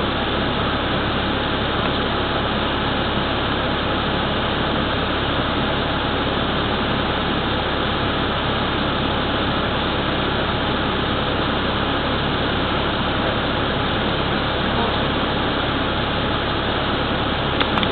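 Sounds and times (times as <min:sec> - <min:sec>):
bus engine idling: 0:00.0 - 0:17.9.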